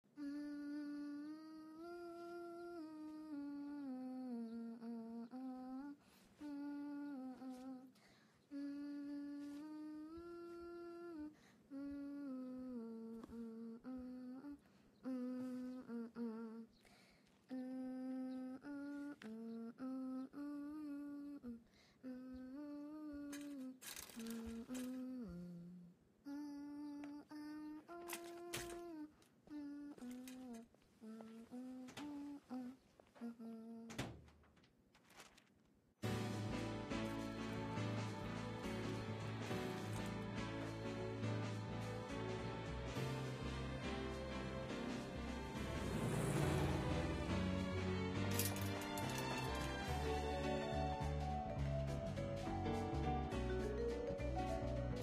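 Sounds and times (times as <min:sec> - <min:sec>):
woman humming: 0:00.0 - 0:16.8, 0:17.4 - 0:34.1, 0:44.9 - 0:47.6
rustling: 0:23.2 - 0:25.2, 0:34.3 - 0:35.8.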